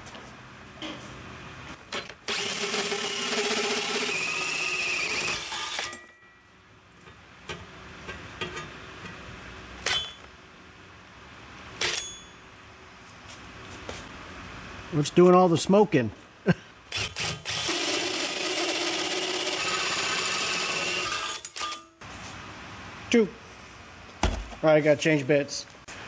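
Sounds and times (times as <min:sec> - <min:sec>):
cordless drill boring into metal: 0:02.3 - 0:06.0, 0:16.9 - 0:21.8.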